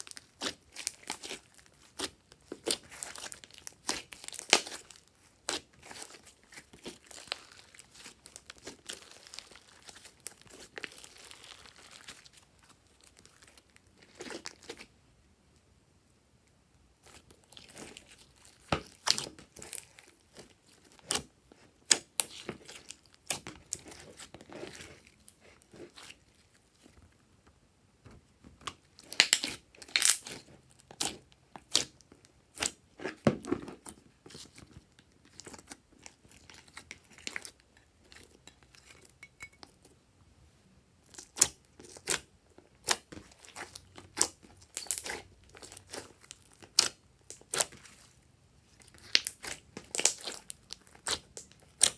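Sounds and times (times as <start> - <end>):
slime crackling and popping: 0.0 - 14.8, 28.6 - 33.3, 41.0 - 48.1, 48.7 - 51.9.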